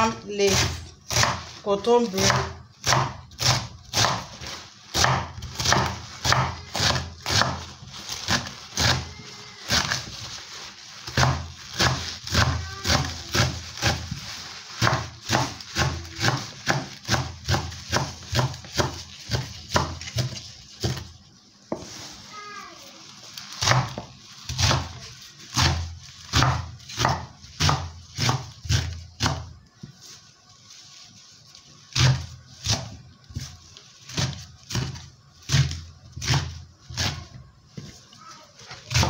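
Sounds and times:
knife chopping on wooden board: 0:00.5 - 0:01.5, 0:02.2 - 0:04.3, 0:04.9 - 0:07.7, 0:11.1 - 0:14.2, 0:14.8 - 0:21.1, 0:23.6 - 0:29.5, 0:34.1 - 0:37.9.

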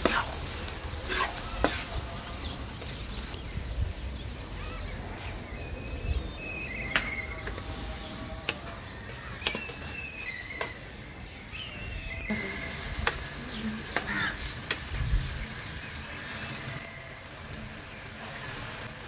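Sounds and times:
light sizzle: 0:00.0 - 0:05.8, 0:12.3 - 0:19.0.

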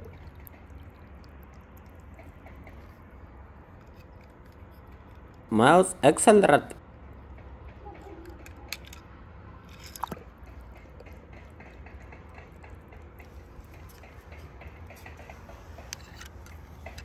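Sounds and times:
small clicks and crackles: 0:00.0 - 0:05.5.

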